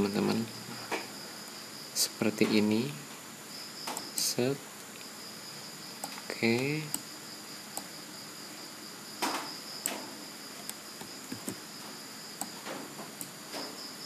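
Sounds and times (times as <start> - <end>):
computer mouse clicking: 3.8 - 4.3, 9.2 - 10.0, 10.6 - 11.6, 12.4 - 13.4.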